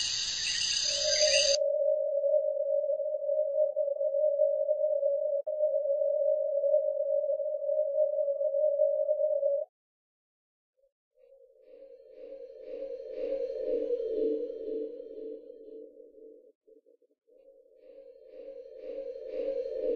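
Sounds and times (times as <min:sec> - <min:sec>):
steady electronic tone: 0:00.0 - 0:09.4.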